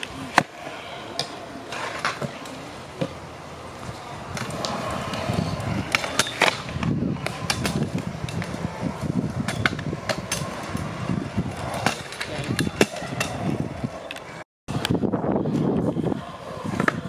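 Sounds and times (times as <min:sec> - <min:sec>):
scooter wheels rolling on concrete: 0:00.0 - 0:17.0
scooter clacking on concrete: 0:04.3 - 0:13.5.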